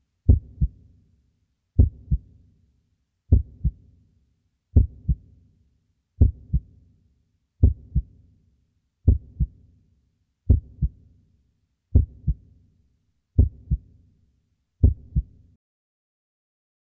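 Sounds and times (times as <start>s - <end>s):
heartbeat: 0.3s - 0.8s, 1.8s - 2.2s, 3.3s - 3.8s, 4.8s - 5.2s, 6.2s - 6.7s, 7.6s - 8.1s, 9.1s - 9.6s, 10.5s - 11.0s, 11.9s - 12.4s, 13.4s - 13.9s, 14.8s - 15.3s.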